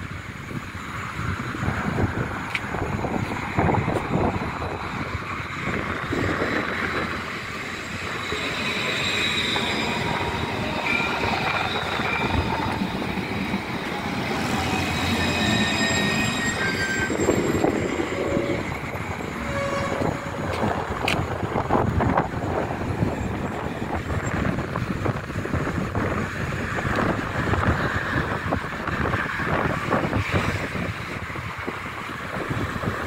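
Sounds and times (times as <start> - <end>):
tram wheel and track noise: 0.0 - 33.0
thin high whines: 6.1 - 20.9.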